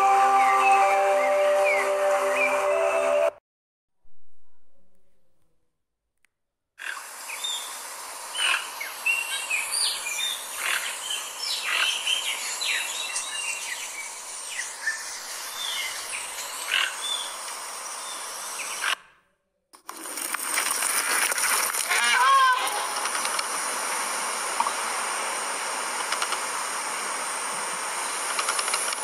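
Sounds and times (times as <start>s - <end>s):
small birds chirping: 6.8s - 19.0s
steady outdoor hiss: 6.8s - 19.0s, 19.8s - 29.0s.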